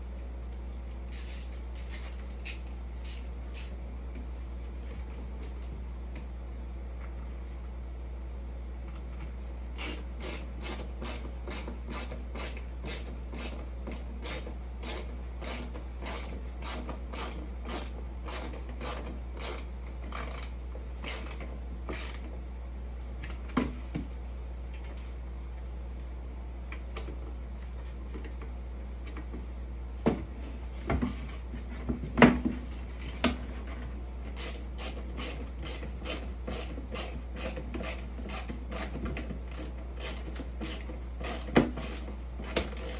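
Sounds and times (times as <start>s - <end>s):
low steady hum: 0.0s - 42.9s.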